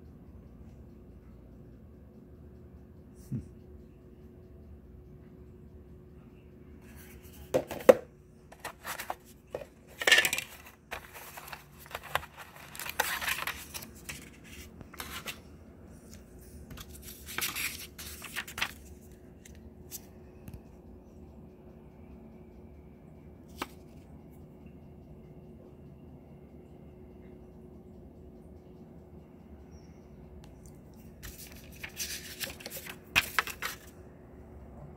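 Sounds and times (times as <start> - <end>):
hands handling plastic packaging: 7.5 - 15.4, 16.1 - 18.9, 31.2 - 33.9.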